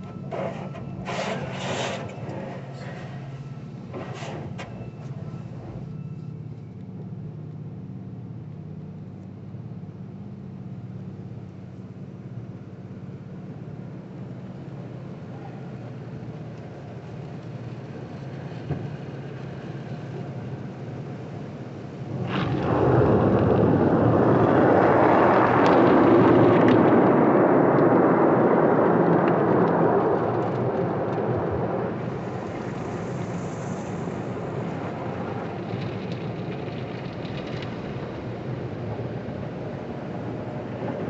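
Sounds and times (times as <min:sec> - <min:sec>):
car wash water spray and brushes: 0:00.0 - 0:05.8, 0:29.1 - 0:41.0.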